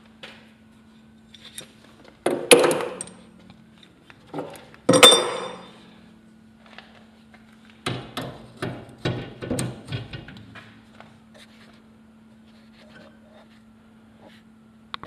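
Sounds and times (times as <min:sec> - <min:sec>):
faint steady hum: 0:00.0 - 0:15.0
metal parts clanking: 0:04.4 - 0:05.7.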